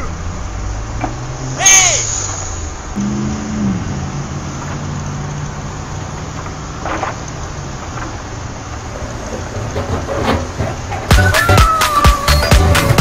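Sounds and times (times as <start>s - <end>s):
vehicle engine running: 0.0s - 11.3s.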